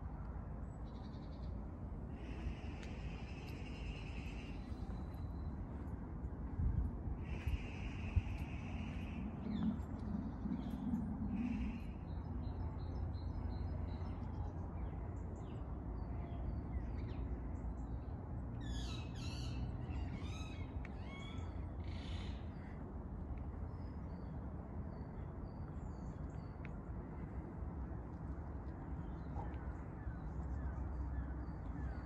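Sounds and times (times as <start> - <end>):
steady low rumble: 0.0 - 18.6.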